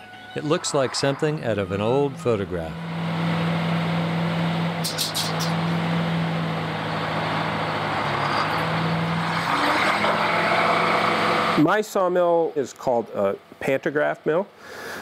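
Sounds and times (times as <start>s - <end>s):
harsh mid-pitched noise: 0.0s - 2.9s, 4.7s - 5.8s
sawmill machinery droning: 0.0s - 11.8s
sharp high clicks: 4.8s - 5.6s.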